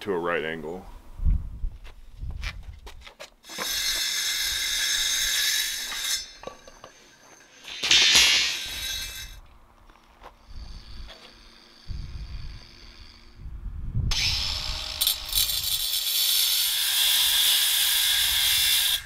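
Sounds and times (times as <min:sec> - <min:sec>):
metal scrape on concrete: 0:03.4 - 0:09.4, 0:15.0 - 0:19.0
steady rasping hiss: 0:03.4 - 0:13.5.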